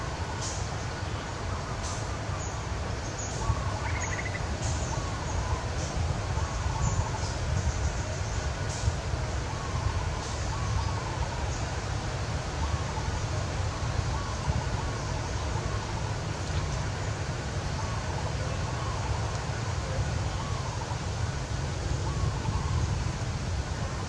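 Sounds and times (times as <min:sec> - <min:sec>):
low wind rumble on microphone: 0:00.0 - 0:24.0
faint rising-and-falling calls: 0:02.4 - 0:08.4.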